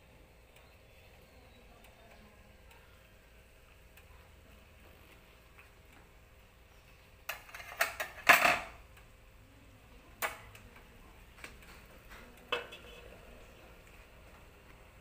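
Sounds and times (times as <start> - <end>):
kitchenware clinking and knocking: 7.3 - 8.8.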